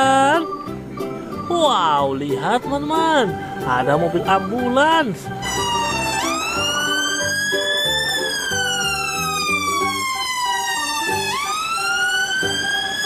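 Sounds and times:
background music: 0.0 - 13.0
emergency siren wailing: 5.4 - 13.0.

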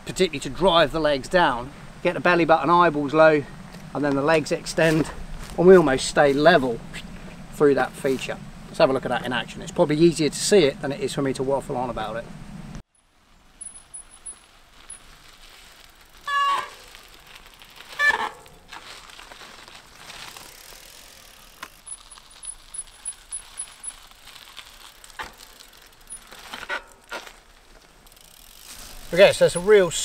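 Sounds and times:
bike ticking and clicking: 12.6 - 30.0
bicycle brakes squealing: 13.6 - 15.2, 16.0 - 18.7, 20.0 - 27.4, 28.1 - 30.0.

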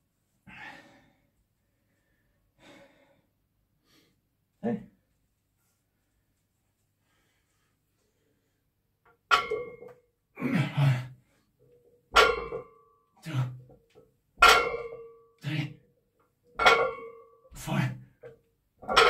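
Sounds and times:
forceful breath or grunt: 10.4 - 11.2.

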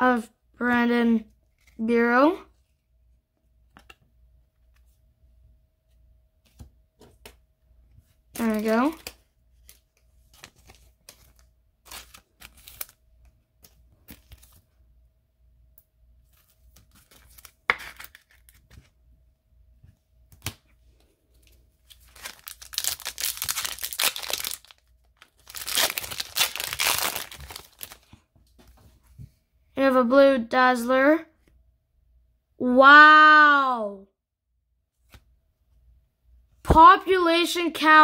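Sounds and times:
card pack wrapper ripping: 8.4 - 13.0, 16.3 - 18.8, 21.9 - 28.1.

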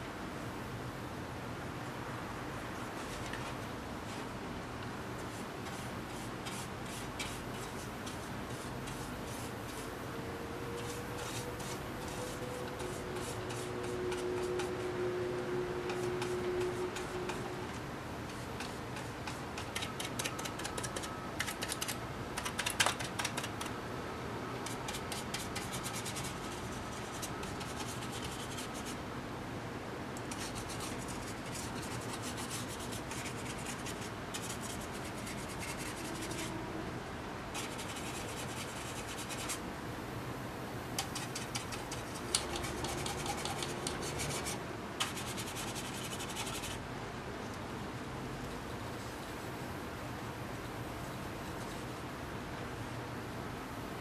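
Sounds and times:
paintbrush scratchy strokes: 5.2 - 10.0, 10.7 - 21.1, 24.7 - 29.0, 30.3 - 36.6, 37.5 - 39.6, 41.1 - 46.8.

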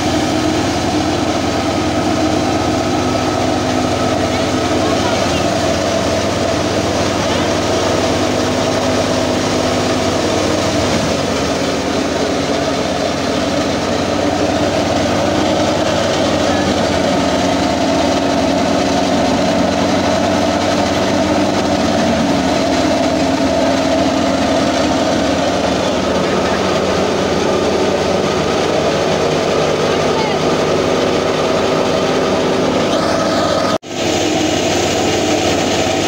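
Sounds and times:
thresher mechanical drone: 0.0 - 36.0
tractor engine: 0.0 - 36.0.

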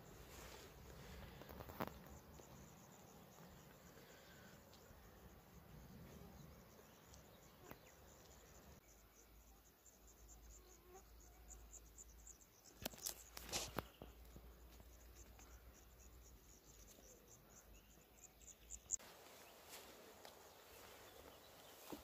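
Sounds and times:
crickets chirping: 0.0 - 22.0
cluster of clicks: 1.4 - 2.2, 12.7 - 14.8.

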